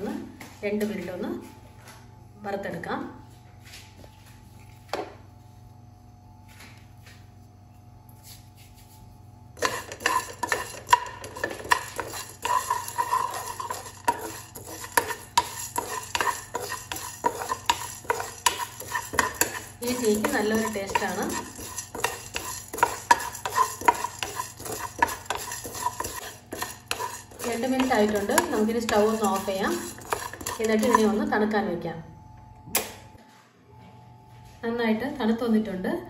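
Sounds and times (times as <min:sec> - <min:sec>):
spatula stirring seeds in a pan: 0:09.6 - 0:31.3.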